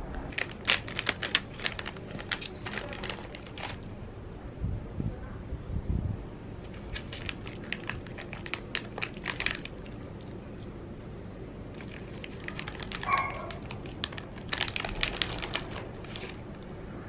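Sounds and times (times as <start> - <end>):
foil bag crinkling: 0.2 - 3.9, 6.6 - 10.7, 11.6 - 16.8.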